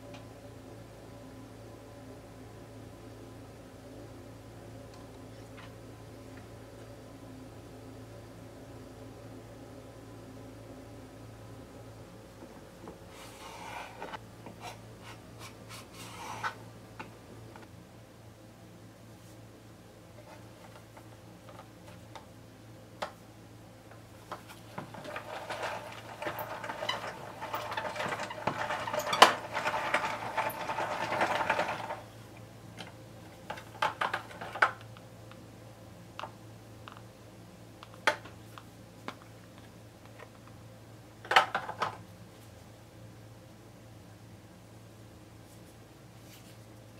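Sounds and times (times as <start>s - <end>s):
toy noodle maker gears rattling: 25.0s - 32.0s.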